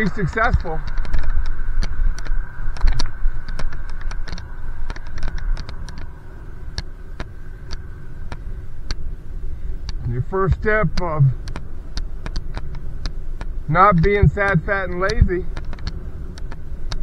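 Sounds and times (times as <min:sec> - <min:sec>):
bicycle clicks and rattles: 0:00.0 - 0:09.0, 0:10.9 - 0:17.0
road rumble: 0:00.0 - 0:17.0
wind: 0:00.0 - 0:17.0.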